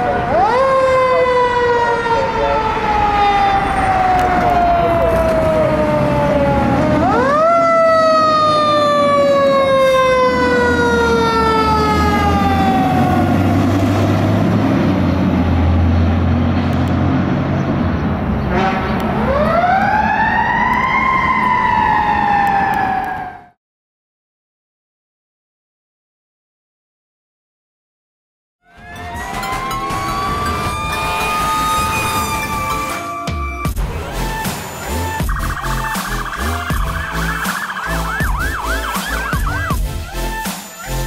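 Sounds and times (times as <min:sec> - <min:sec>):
fire engine siren wailing: 0:00.0 - 0:17.1, 0:18.5 - 0:23.6, 0:28.6 - 0:41.0
truck engine running: 0:28.8 - 0:41.0.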